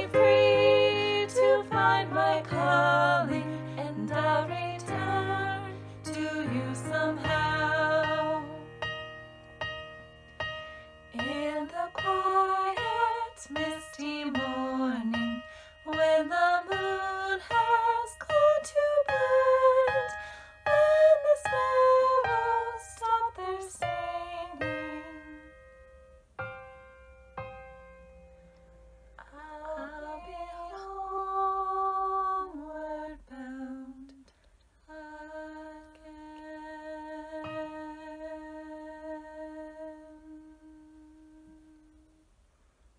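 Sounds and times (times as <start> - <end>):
woman singing: 0.0 - 8.8, 11.1 - 25.6, 29.2 - 34.2, 34.8 - 42.2
piano chords: 0.0 - 33.2.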